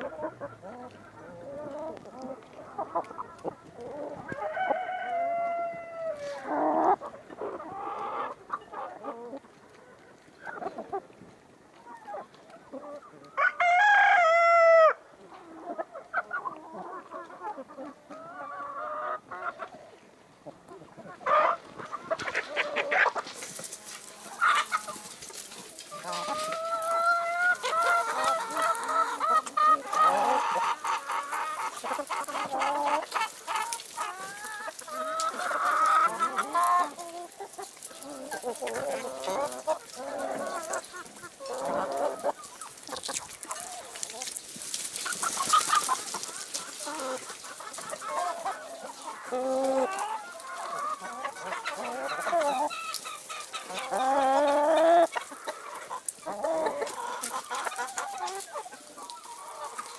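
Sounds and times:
chickens clucking: 0:00.0 - 0:59.9
rooster crowing: 0:04.3 - 0:06.4, 0:13.4 - 0:15.0.

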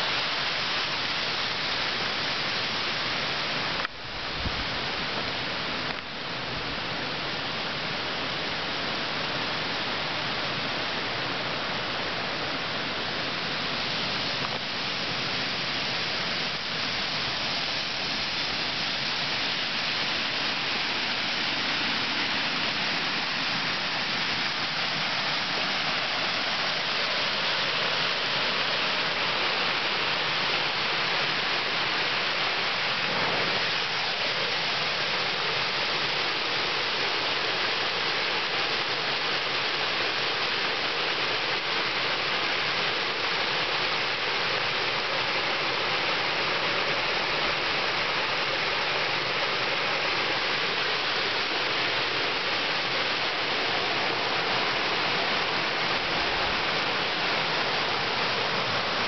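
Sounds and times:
river water pouring over a weir: 0:00.0 - 0:59.0.

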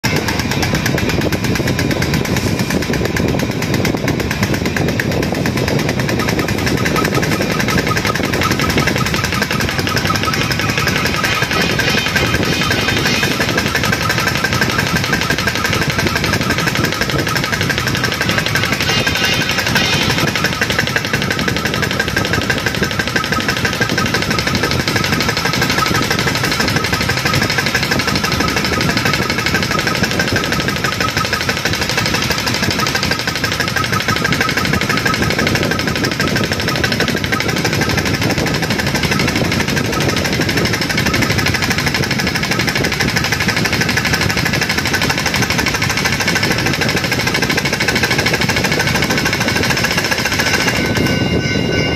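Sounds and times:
pneumatic diaphragm pump pulsing: 0:00.0 - 0:51.9.

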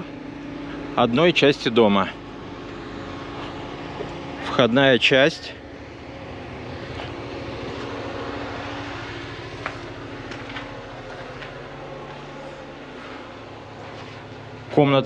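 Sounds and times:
distant engine noise: 0:00.0 - 0:15.0
low hum: 0:00.0 - 0:15.0.

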